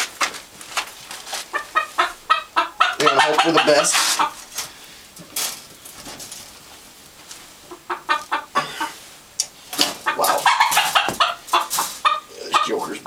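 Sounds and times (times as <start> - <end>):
rooster clucking: 1.4 - 4.6, 7.6 - 13.0.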